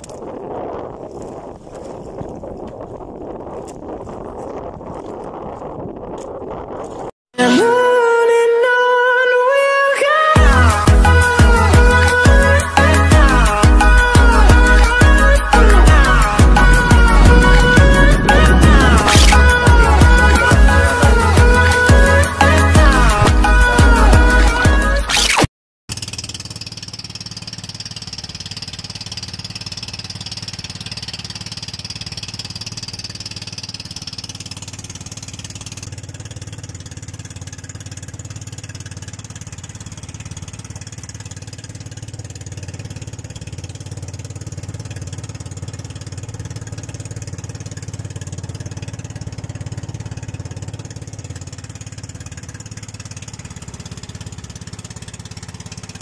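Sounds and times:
boat engine droning: 10.4s - 25.0s, 26.2s - 56.0s.

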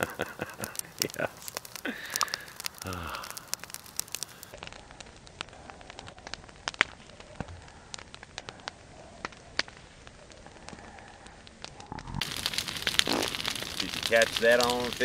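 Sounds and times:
campfire crackling: 0.0s - 15.0s
fire popping: 0.0s - 15.0s
faint steady hiss: 12.2s - 15.0s.

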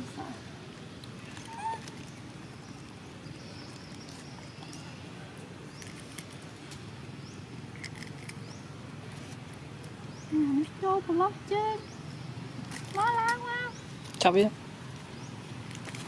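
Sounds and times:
monkeys eating and rustling: 0.0s - 16.0s
outdoor background noise: 0.0s - 16.0s.

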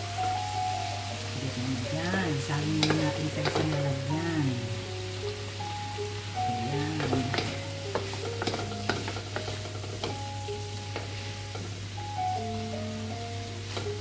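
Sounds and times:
light sizzle: 0.0s - 14.0s
utensil scraping and clinking pan: 6.8s - 10.3s.

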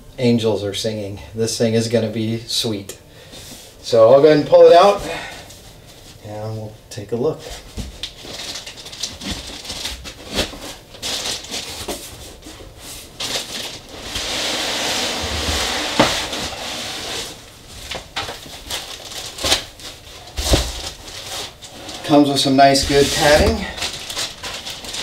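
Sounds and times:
foam and cardboard rustling: 7.4s - 25.0s.

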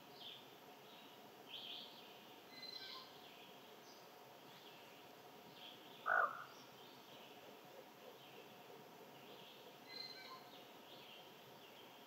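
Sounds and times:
background hiss: 0.0s - 12.0s
lower bird call: 6.0s - 6.6s.

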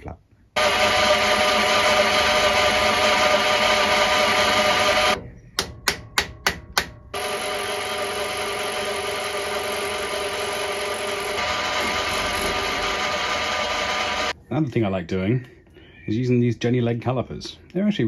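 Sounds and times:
milling machine running: 0.6s - 5.2s, 7.2s - 14.4s.

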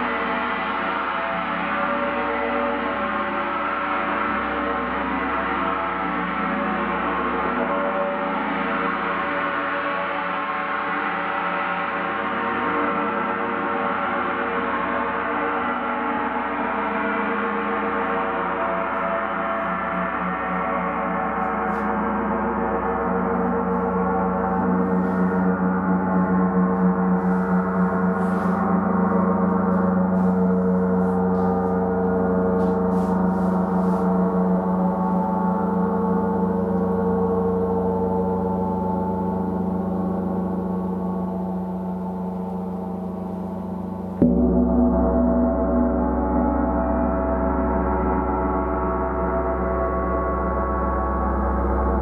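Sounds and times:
large gong ringing: 14.8s - 52.0s.

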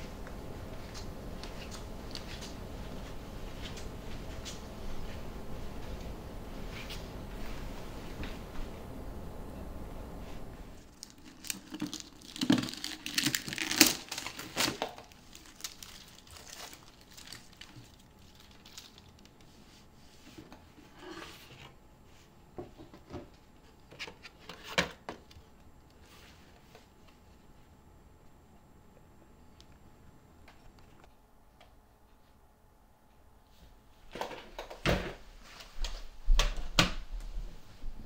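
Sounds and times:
crinkles and knocks: 10.9s - 19.2s.

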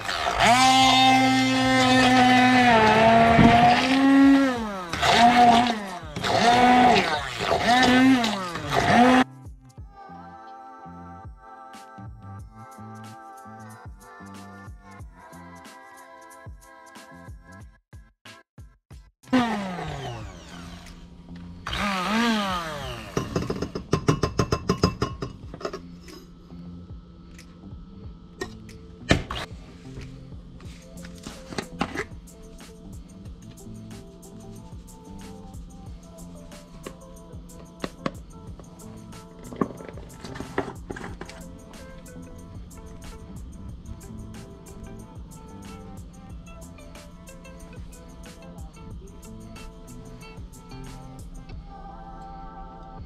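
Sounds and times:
immersion blender whining: 0.0s - 9.3s, 19.2s - 26.2s, 28.4s - 49.4s
background music with steady beat: 0.0s - 53.0s.

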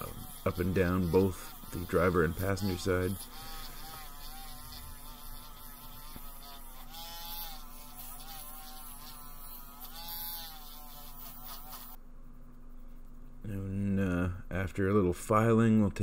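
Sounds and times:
rotary tool grinding metal: 0.0s - 10.6s.

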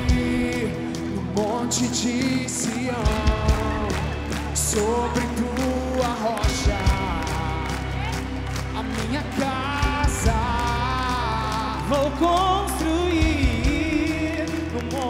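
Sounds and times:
live band playing worship song: 0.0s - 15.0s
person singing: 0.0s - 15.0s.

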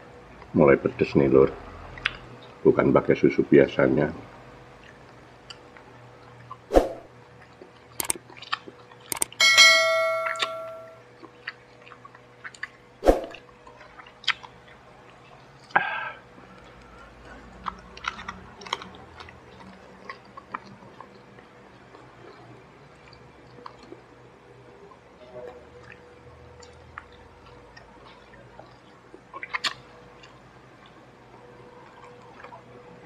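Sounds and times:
person chewing: 7.7s - 9.3s, 11.4s - 21.2s, 26.6s - 31.0s
wet mouth clicks and smacks: 8.0s - 9.3s, 29.4s - 30.4s
bell-like ding: 9.2s - 11.0s.

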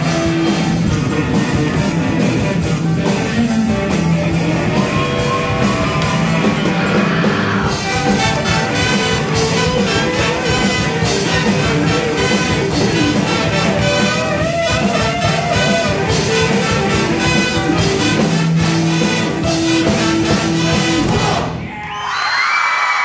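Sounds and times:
regular drum beat: 0.0s - 21.5s
live band playing up-tempo: 0.0s - 21.6s
electric guitar: 0.0s - 21.7s
brass: 3.8s - 21.7s.

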